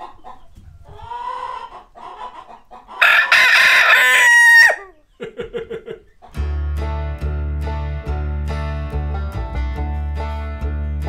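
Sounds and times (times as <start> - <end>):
chickens clucking softly: 0.0 - 6.4
rooster crowing: 3.0 - 5.0.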